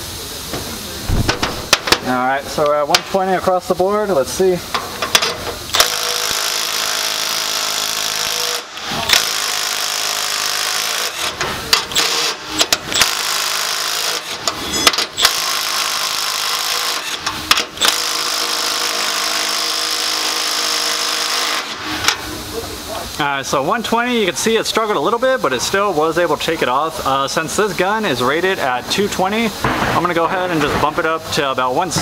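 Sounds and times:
impact wrench hammering bolts: 1.1s - 2.1s, 4.7s - 22.2s.

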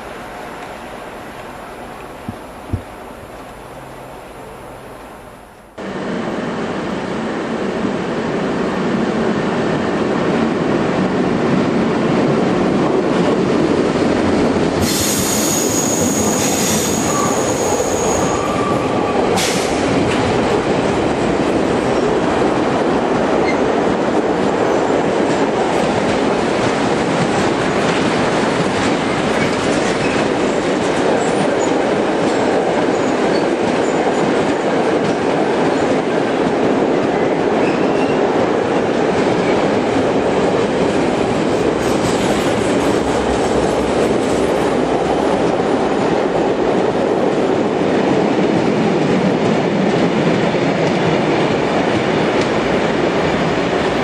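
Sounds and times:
diesel train running in: 0.0s - 32.3s
train wheels clattering on rails: 9.2s - 54.0s
wheel squeal: 14.9s - 18.9s.

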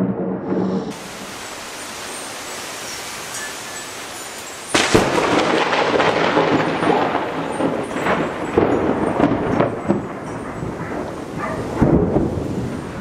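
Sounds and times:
thunder crack: 0.0s - 1.3s, 4.7s - 13.0s
rumbling thunder: 0.0s - 1.4s, 4.7s - 13.0s.

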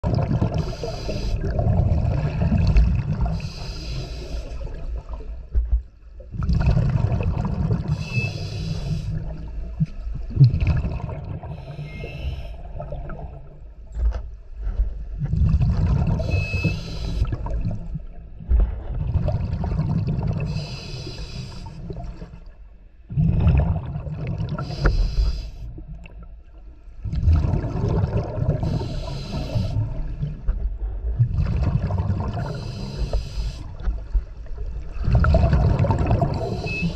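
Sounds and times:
gurgling exhaled bubbles: 0.0s - 5.4s, 6.2s - 13.7s, 15.2s - 22.5s, 23.1s - 26.3s, 27.0s - 36.9s
hissing regulator inhale: 0.5s - 1.5s, 3.3s - 4.7s, 7.9s - 9.3s, 11.5s - 12.6s, 16.2s - 17.4s, 20.5s - 21.8s, 24.6s - 25.7s, 28.6s - 29.9s, 32.4s - 33.8s, 36.3s - 36.9s.

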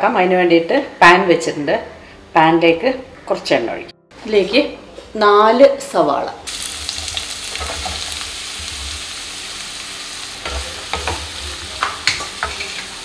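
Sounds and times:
onions sizzling in oil: 6.5s - 13.0s.

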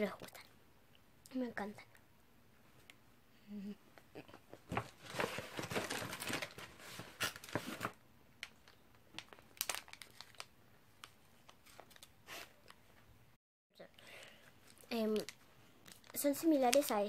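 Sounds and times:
plastic packaging crinkling: 4.7s - 12.2s.

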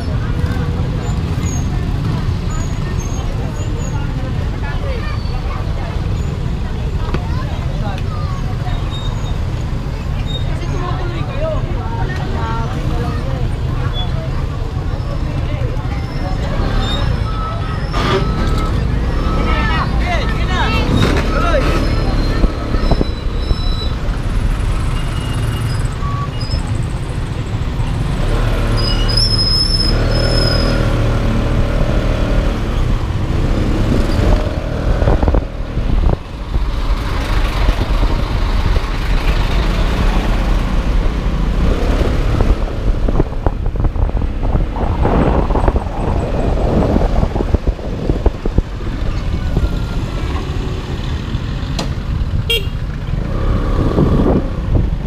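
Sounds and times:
scooter engine and road noise: 0.0s - 55.0s
vehicle horn tooting: 52.5s - 52.8s.

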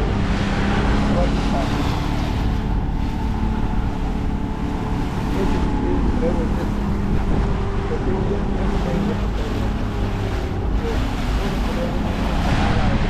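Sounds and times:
boat engine running: 0.0s - 13.0s
water rushing past hull: 0.0s - 13.0s
wind buffeting microphone: 0.0s - 13.0s.

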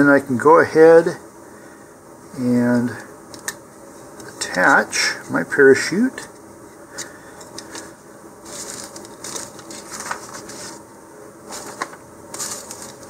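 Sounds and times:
plastic and paper rustling: 7.6s - 10.8s, 11.5s - 13.0s.

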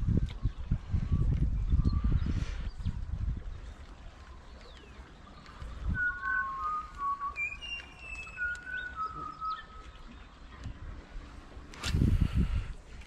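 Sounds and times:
bird singing: 3.6s - 10.6s.

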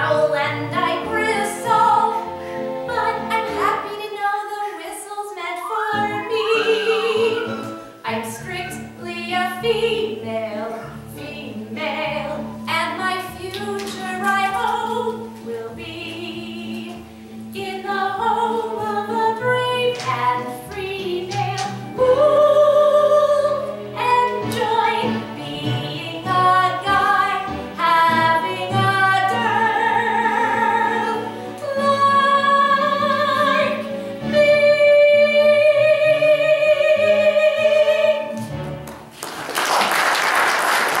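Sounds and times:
woman singing with vibrato: 0.0s - 38.4s
applause: 38.9s - 41.0s.

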